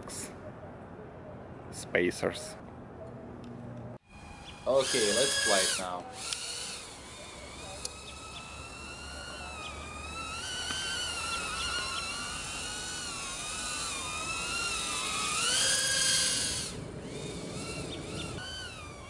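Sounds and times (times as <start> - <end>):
quadcopter motors whining: 4.0 - 19.0.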